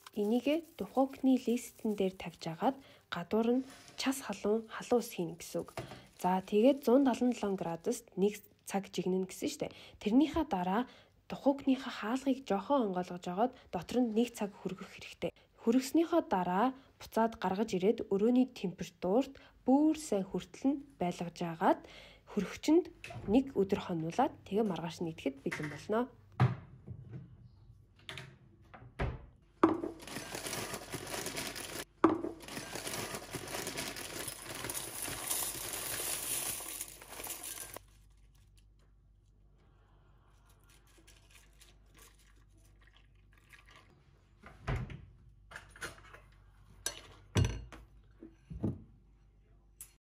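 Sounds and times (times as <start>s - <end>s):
milk pouring onto cereal: 32.6s - 37.8s.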